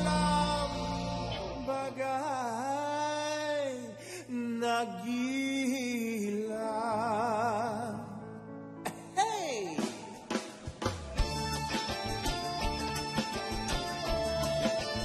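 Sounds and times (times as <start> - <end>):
man singing: 0.0 - 10.3
soft musical backing: 0.0 - 15.0.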